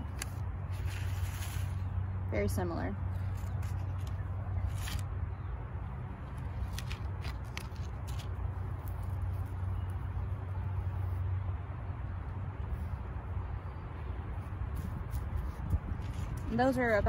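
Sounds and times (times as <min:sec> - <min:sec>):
paper seed packets crinkling: 0:00.0 - 0:01.9, 0:03.2 - 0:05.1, 0:06.3 - 0:09.6.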